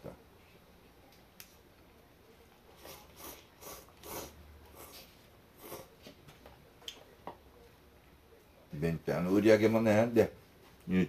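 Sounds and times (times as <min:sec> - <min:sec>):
noodles being slurped: 0:02.8 - 0:05.0.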